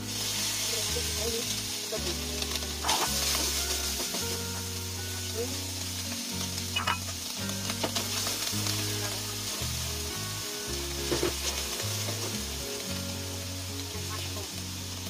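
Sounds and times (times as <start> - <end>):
background music: 0.0 - 15.0
food sizzling in oil: 0.0 - 15.0.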